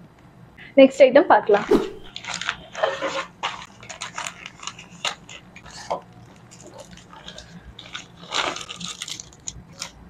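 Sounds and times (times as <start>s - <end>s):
plastic bag crinkling: 3.8s - 9.9s.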